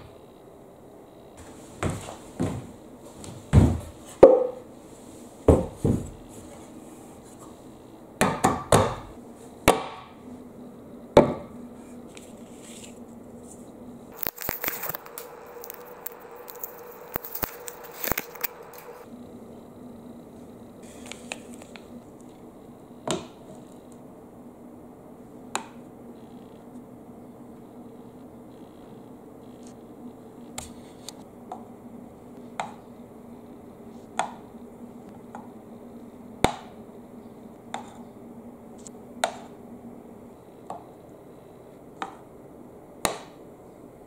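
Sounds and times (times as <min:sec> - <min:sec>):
tape crinkling and crackling: 0:12.2 - 0:19.1.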